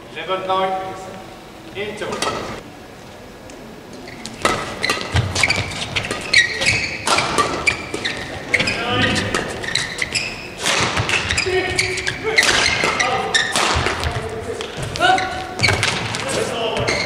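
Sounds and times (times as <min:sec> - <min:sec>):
shoes squeaking on court: 0:04.0 - 0:17.0
racket striking shuttlecock: 0:04.4 - 0:08.1.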